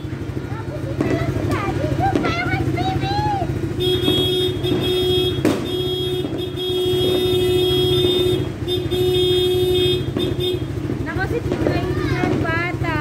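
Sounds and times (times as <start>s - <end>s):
engine idling: 0.0s - 13.0s
horn blowing long blasts: 3.7s - 11.0s.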